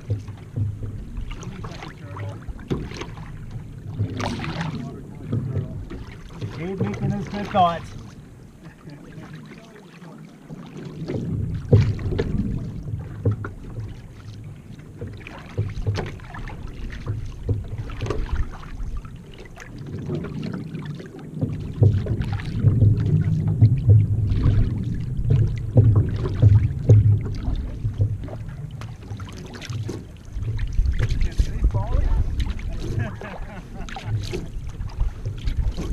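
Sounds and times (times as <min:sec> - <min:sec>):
water splashing along canoe hull: 0:00.0 - 0:35.9
short knocks: 0:11.1 - 0:13.9
low rumble: 0:21.5 - 0:29.3, 0:30.2 - 0:35.9.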